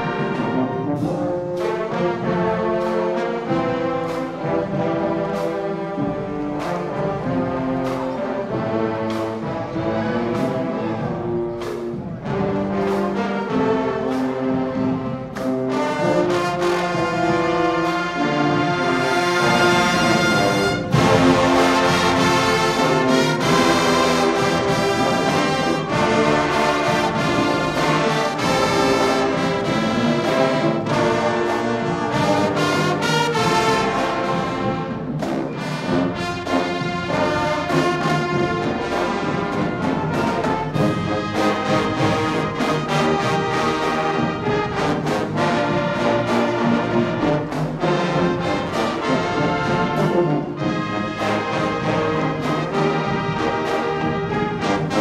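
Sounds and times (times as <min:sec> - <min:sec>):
brass sustained chords: 0:00.0 - 0:55.0
marching band playing: 0:00.0 - 0:55.0
drum hits: 0:19.2 - 0:46.0.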